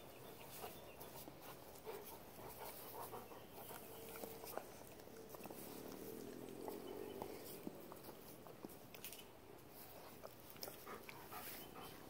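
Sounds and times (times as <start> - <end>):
puppy panting: 0.0 - 9.0, 9.6 - 12.0
puppy licking with wet clicks: 3.6 - 11.9.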